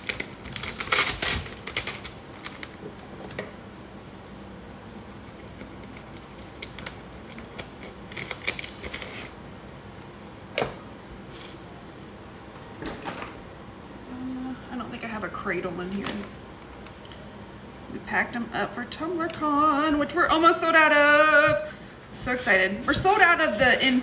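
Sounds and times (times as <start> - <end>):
scissors cutting plastic: 0.0 - 2.8
plastic tape crinkling: 0.0 - 3.0, 5.3 - 9.4.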